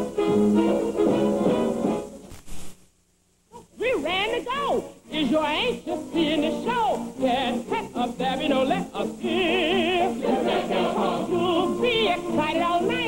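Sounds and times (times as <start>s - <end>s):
musical accompaniment: 0.0s - 2.3s, 5.2s - 13.0s
woman singing show tune: 3.6s - 13.0s.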